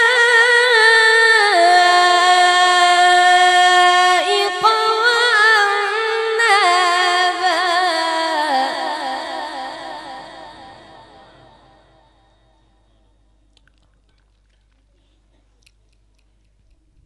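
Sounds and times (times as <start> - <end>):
boy reciting melodically: 0.0 - 12.1.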